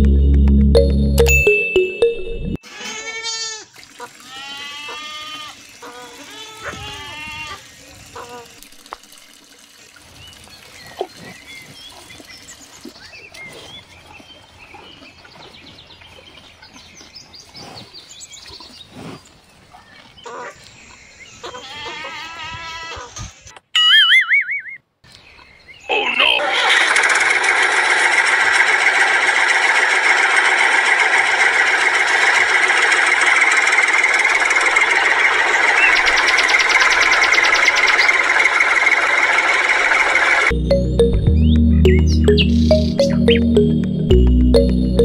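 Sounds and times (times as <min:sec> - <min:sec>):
farm animals bleating: 0:02.7 - 0:05.6, 0:06.2 - 0:07.6, 0:21.4 - 0:23.1.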